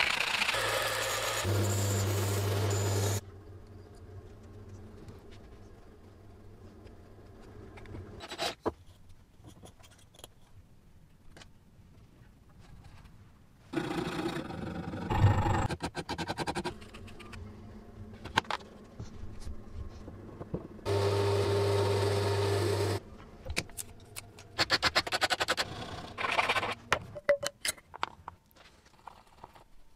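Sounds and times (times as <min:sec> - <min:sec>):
small motor humming: 0:00.0 - 0:03.2, 0:20.9 - 0:23.0.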